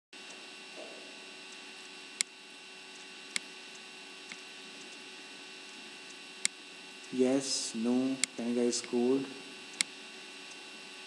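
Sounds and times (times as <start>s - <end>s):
mains hum and hiss: 0.2s - 11.0s
sharp clicks: 1.5s - 5.0s, 9.7s - 10.6s.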